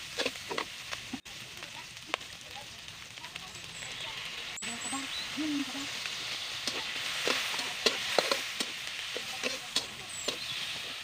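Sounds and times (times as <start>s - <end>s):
metal spatula scraping a wok: 0.0s - 0.8s, 5.9s - 11.0s
food sizzling in oil: 0.0s - 11.0s.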